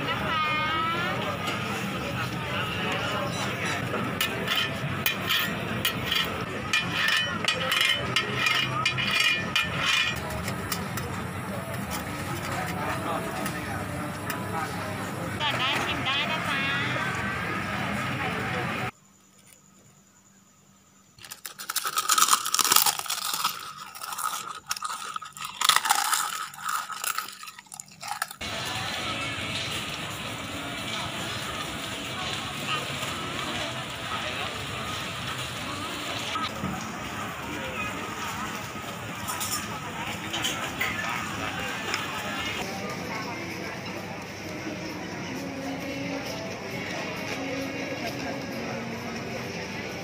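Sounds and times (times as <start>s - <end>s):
market crowd noise: 0.0s - 20.4s, 21.1s - 50.0s
metal scraper on griddle: 4.2s - 10.9s
crispy shells crunching: 21.2s - 28.4s.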